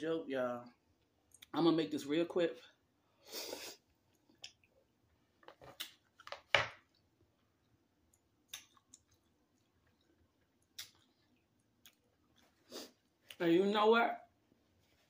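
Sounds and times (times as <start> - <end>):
chewing with wet mouth clicks: 4.1 - 4.8, 5.8 - 12.6.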